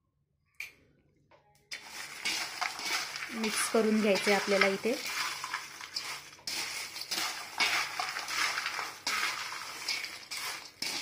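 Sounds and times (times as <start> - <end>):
spoon stirring in steel bowl: 1.7 - 11.0.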